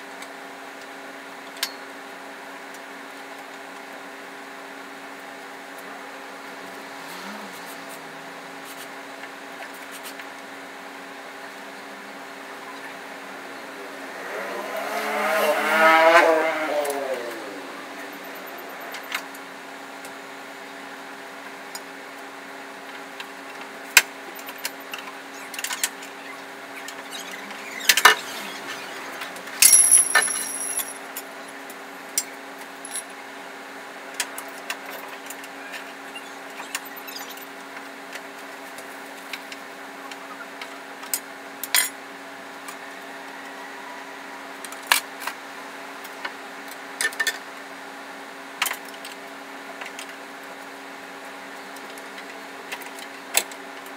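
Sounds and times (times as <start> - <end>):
tools clanking on engine parts: 29.5 - 31.3, 32.2 - 33.1.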